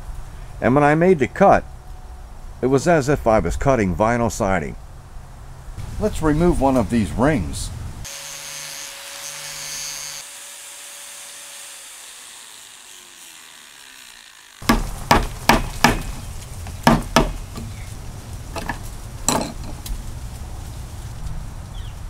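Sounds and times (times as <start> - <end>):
angle grinder winding down: 8.1 - 14.6.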